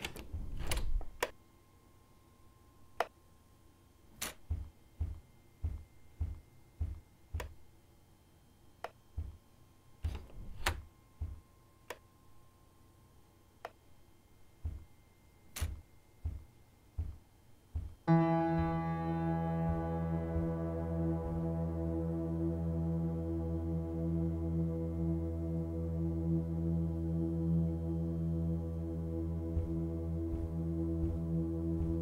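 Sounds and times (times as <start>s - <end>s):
footsteps on floor: 15.6s - 18.0s, 29.5s - 32.0s
sustained music chord: 18.1s - 32.0s.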